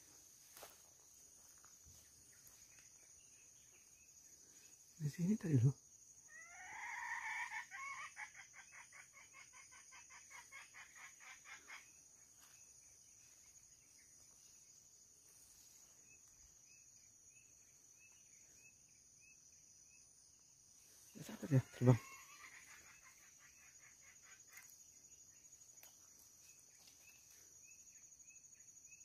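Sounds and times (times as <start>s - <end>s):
junglefowl cackling alarm: 6.3s - 12.0s, 21.1s - 24.7s.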